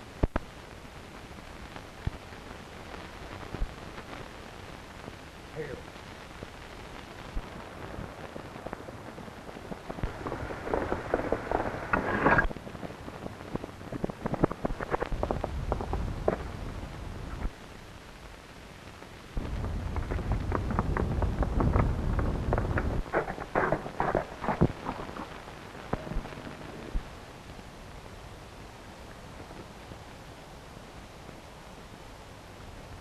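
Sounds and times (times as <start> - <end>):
film soundtrack hiss: 0.0 - 33.0
twigs crackling and snapping: 9.6 - 12.6, 19.8 - 27.0
horse rustling through undergrowth: 10.1 - 12.5.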